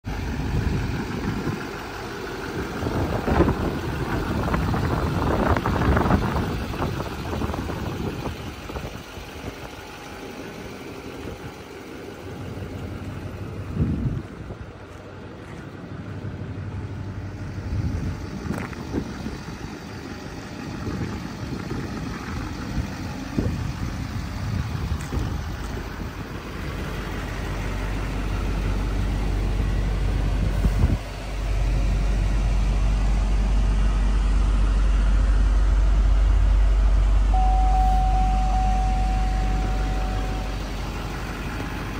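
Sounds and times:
truck engine idling: 0.0s - 41.9s
high electronic beep: 37.4s - 40.7s.

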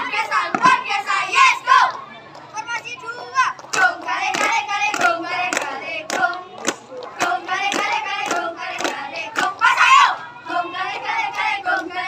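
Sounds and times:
hand claps: 3.5s - 9.6s
loud shout: 9.6s - 10.3s.

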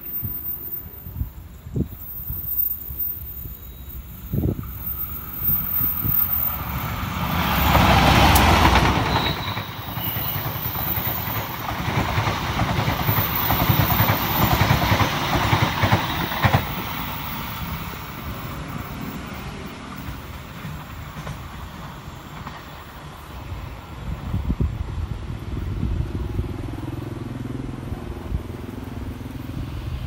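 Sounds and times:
diesel locomotive engine: 0.0s - 30.0s
train wheels clattering over rails: 4.7s - 24.4s.

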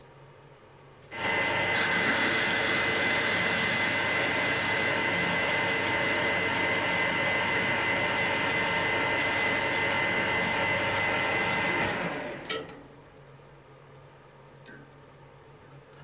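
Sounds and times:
high whine from lathe drive: 1.1s - 12.5s
metal lathe cutting: 1.2s - 12.5s.

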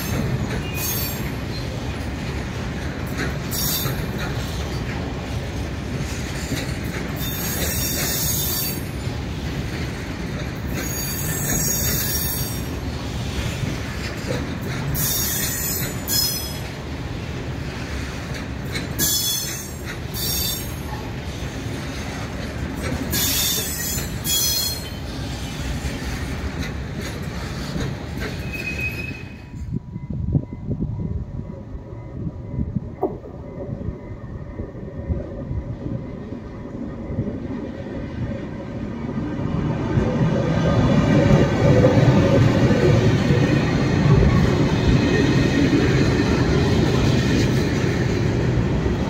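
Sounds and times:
wheel squeal: 0.0s - 1.8s, 7.2s - 8.9s, 10.7s - 12.7s, 15.0s - 16.6s, 23.1s - 25.6s, 28.3s - 29.7s
freight train rumbling: 0.0s - 49.0s.

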